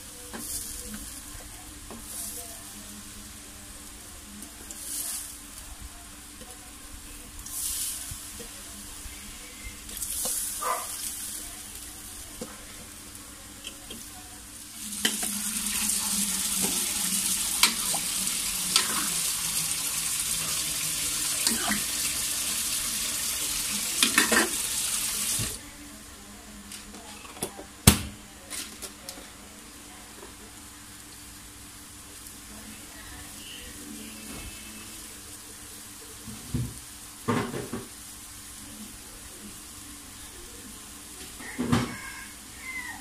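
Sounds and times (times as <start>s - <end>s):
tap water running: 14.7s - 25.6s.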